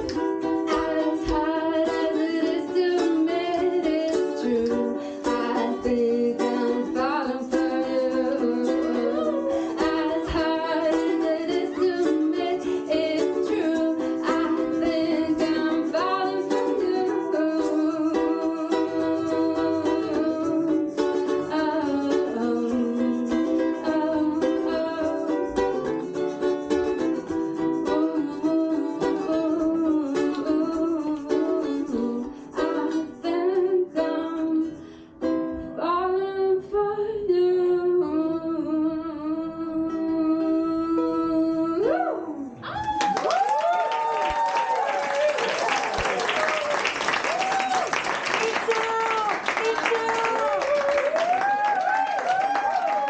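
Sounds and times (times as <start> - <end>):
woman singing: 0.0 - 26.4, 27.5 - 34.9, 35.7 - 42.8, 47.4 - 53.0
acoustic string instrument: 0.0 - 53.0.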